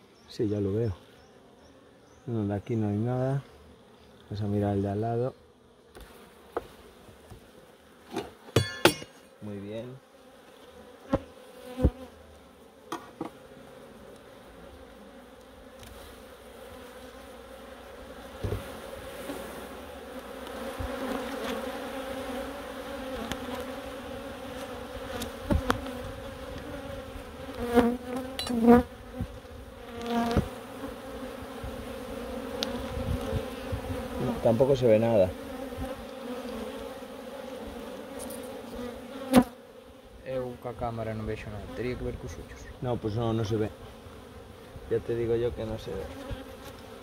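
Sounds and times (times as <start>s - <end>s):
honeybees buzzing: 0.0s - 47.0s
knocks from wooden hive frames: 5.9s - 9.3s, 11.1s - 12.1s, 12.9s - 13.4s, 18.4s - 18.8s, 25.1s - 26.8s, 27.6s - 30.6s.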